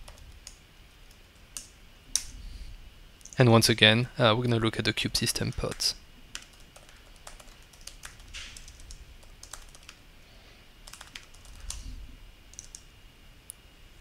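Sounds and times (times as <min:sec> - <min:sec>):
typing on computer keyboard: 0:05.5 - 0:10.0, 0:10.8 - 0:11.8, 0:12.5 - 0:12.8.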